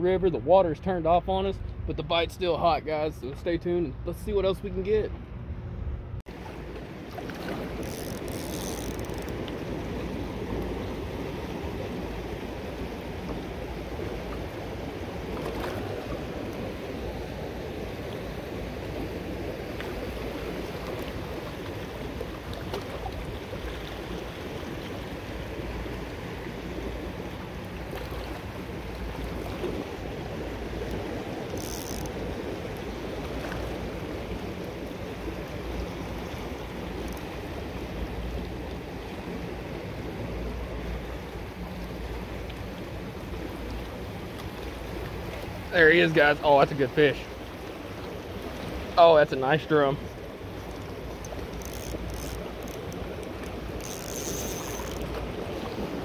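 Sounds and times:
fast river current rushing: 0:06.3 - 0:56.0.

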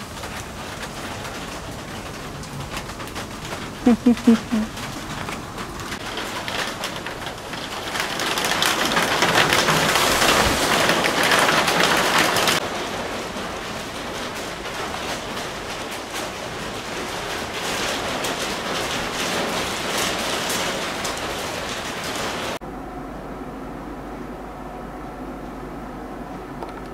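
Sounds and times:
steady rain: 0:00.0 - 0:22.6.

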